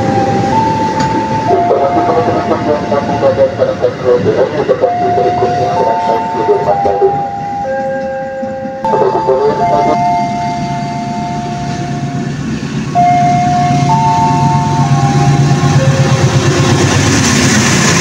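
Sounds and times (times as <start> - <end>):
train engine rumble: 0.0 - 18.0
slow melody of held tones: 4.9 - 16.2.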